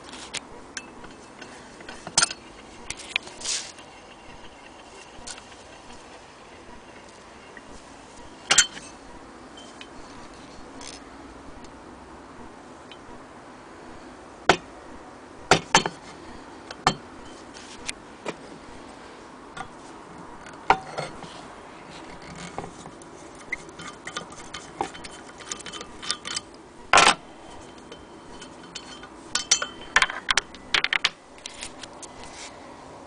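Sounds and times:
short metal scrape: 0:01.0 - 0:09.0
metal clicks and clinks: 0:23.4 - 0:26.6.

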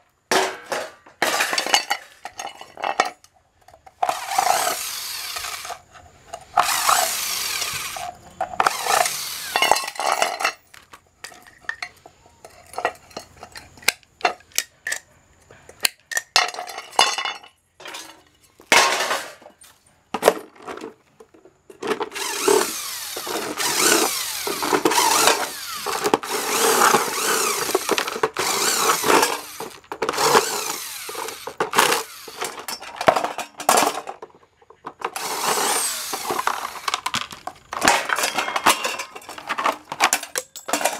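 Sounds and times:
screws and metal parts clicking: 0:02.2 - 0:15.1, 0:21.7 - 0:34.2, 0:34.8 - 0:40.9
impact driver running in bursts: 0:04.0 - 0:05.8, 0:06.6 - 0:09.6, 0:22.1 - 0:32.6, 0:35.1 - 0:37.0.

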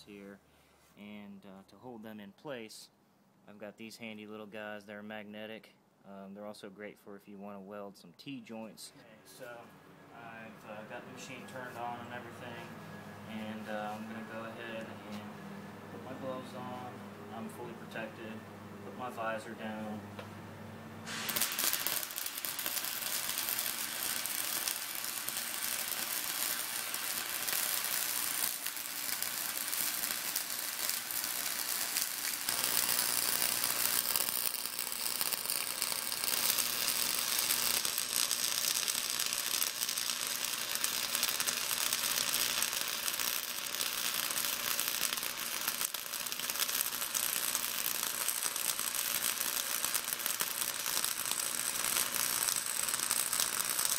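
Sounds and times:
welder arc crackling: 0:10.4 - 0:15.3, 0:19.0 - 0:53.9.

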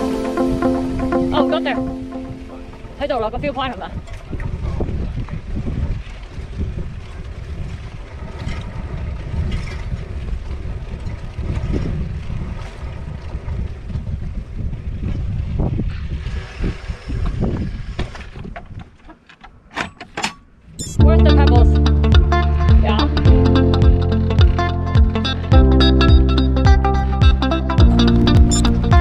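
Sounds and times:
wind buffeting microphone: 0:00.0 - 0:19.0.

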